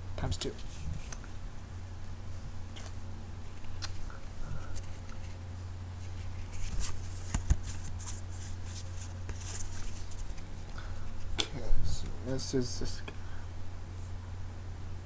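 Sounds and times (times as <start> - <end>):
steady low hum: 0.0 - 15.0
trading cards rustling: 6.0 - 11.4.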